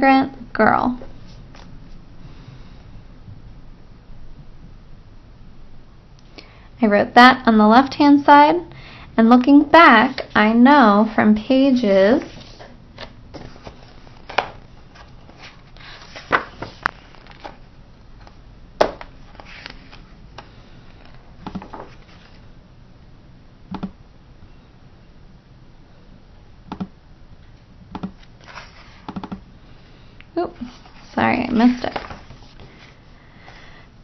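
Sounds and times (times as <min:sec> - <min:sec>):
book pages turning: 0:01.3 - 0:02.0, 0:12.2 - 0:20.2, 0:20.9 - 0:22.4, 0:28.2 - 0:29.1, 0:30.6 - 0:33.6.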